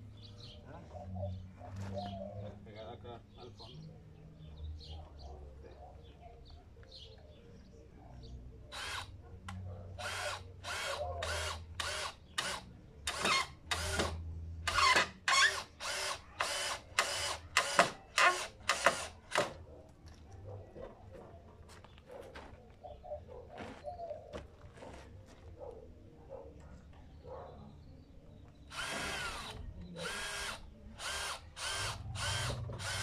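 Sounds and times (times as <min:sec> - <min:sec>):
cordless drill driving screws: 0:08.7 - 0:09.1, 0:10.0 - 0:19.5, 0:28.7 - 0:33.0.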